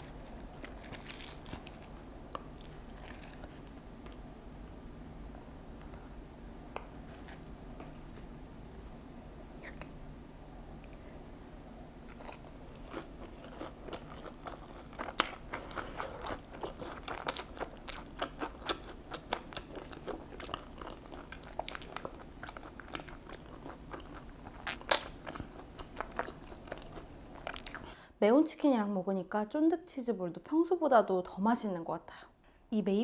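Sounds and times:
person chewing with crunches: 0:00.0 - 0:04.2, 0:12.0 - 0:27.9.

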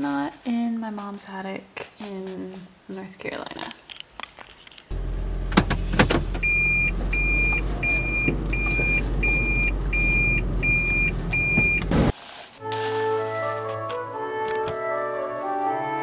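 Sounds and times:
car engine running: 0:04.9 - 0:12.1
car warning chime beeping: 0:06.4 - 0:12.1
music with organ-like tones: 0:12.9 - 0:16.0.

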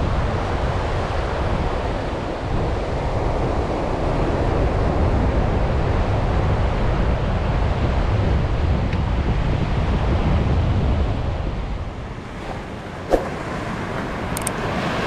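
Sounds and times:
wind noise on microphone: 0:00.0 - 0:15.0
ocean surf washing in: 0:12.0 - 0:15.0.

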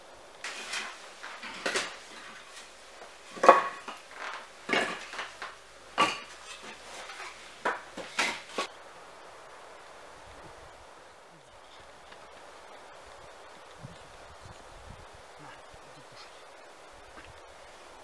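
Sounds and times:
firewood pieces clunking: 0:00.4 - 0:08.7.

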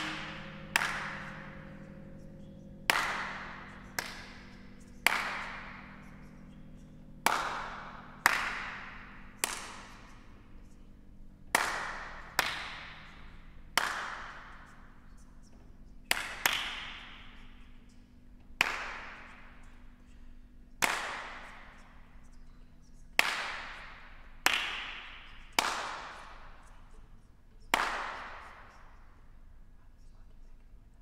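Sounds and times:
faint low steady hum: 0:00.0 - 0:31.0
sharp slap-like cracks: 0:27.7 - 0:28.9.

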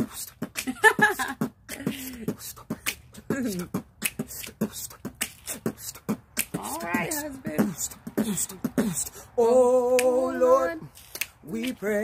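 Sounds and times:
man beatboxing: 0:00.0 - 0:12.0.

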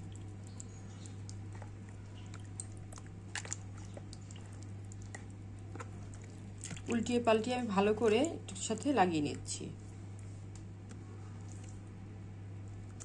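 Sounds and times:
wet squelches of hands on meat: 0:00.0 - 0:07.1
steady low hum: 0:00.0 - 0:13.0.

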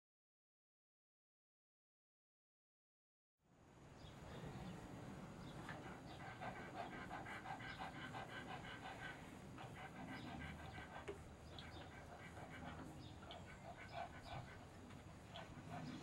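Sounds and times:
dog panting: 0:05.3 - 0:16.0.

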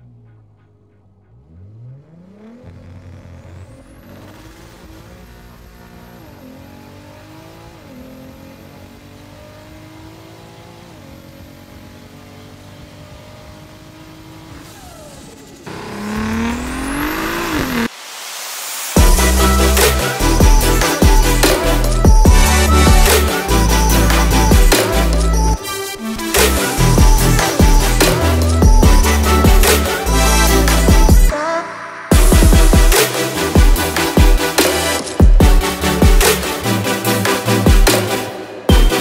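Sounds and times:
car engine accelerating hard: 0:00.0 - 0:17.9
loud rising whine: 0:14.8 - 0:33.0.

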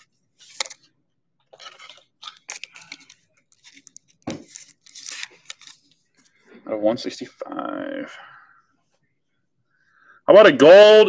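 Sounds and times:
plastic wrapping tearing and crinkling: 0:01.5 - 0:05.9.

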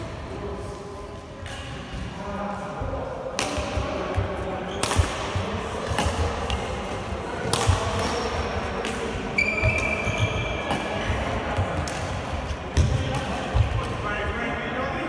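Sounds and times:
racket striking shuttlecock: 0:04.8 - 0:09.9, 0:10.7 - 0:11.2
shoe squeak on floor: 0:09.3 - 0:10.8.

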